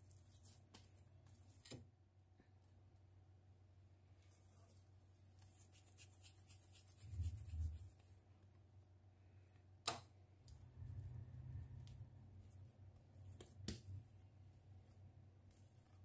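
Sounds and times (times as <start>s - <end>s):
hands rubbing dough: 0.0s - 1.7s, 4.1s - 8.8s, 10.6s - 16.0s.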